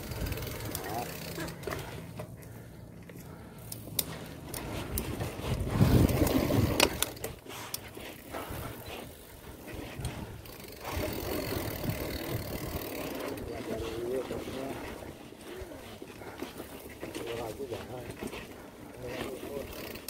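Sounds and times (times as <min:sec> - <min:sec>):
wind buffeting microphone: 0:00.0 - 0:00.7, 0:04.6 - 0:07.4, 0:08.3 - 0:15.8
bike rattling and knocking: 0:00.0 - 0:20.0
tyres rolling on dirt: 0:00.0 - 0:20.0.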